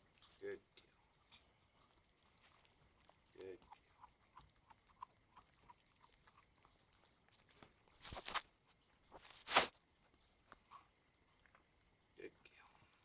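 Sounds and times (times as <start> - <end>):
puppy chewing bone: 0.0 - 13.0.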